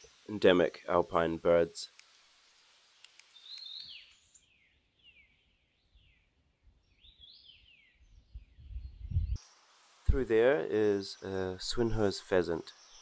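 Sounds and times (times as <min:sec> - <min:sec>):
bird singing faintly: 0:03.3 - 0:13.0.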